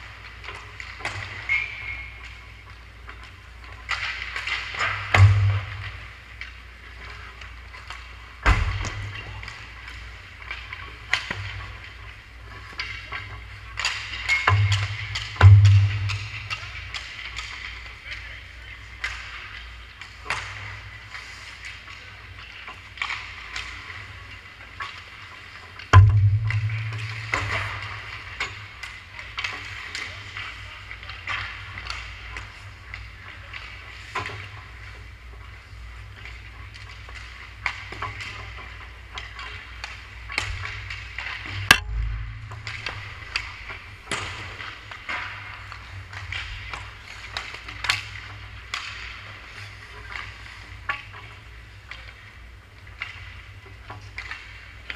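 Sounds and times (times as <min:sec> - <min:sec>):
stick and puck clacks: 0:00.0 - 0:54.9
hard hits with low boom: 0:26.0 - 0:27.5, 0:41.7 - 0:44.0
steady low hum: 0:26.0 - 0:29.0, 0:38.4 - 0:52.8
skate blades scraping ice: 0:42.7 - 0:54.9.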